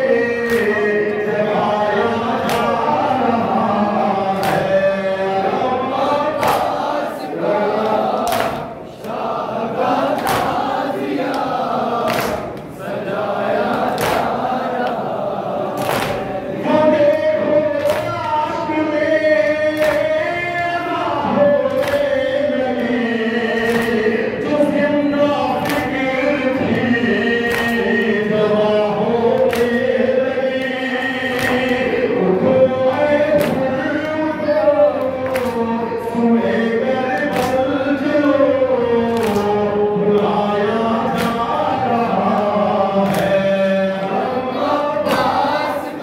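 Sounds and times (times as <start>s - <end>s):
man singing lament into microphone: 0.0s - 12.0s, 16.3s - 46.0s
group chanting: 0.0s - 46.0s
chest-beating slaps: 0.4s - 0.8s, 2.4s - 2.8s, 4.4s - 4.8s, 6.4s - 7.0s, 7.8s - 9.3s, 10.0s - 12.8s, 13.6s - 15.1s, 15.7s - 16.4s, 19.7s - 20.2s.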